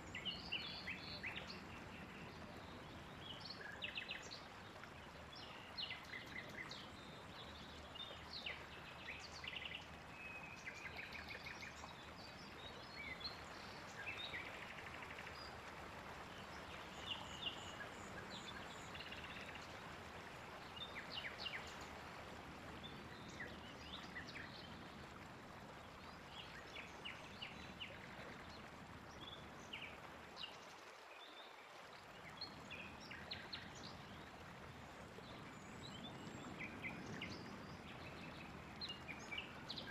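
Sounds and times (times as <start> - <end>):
faint steady hiss: 0.0 - 39.9
songbirds chirping and trilling: 32.3 - 39.9.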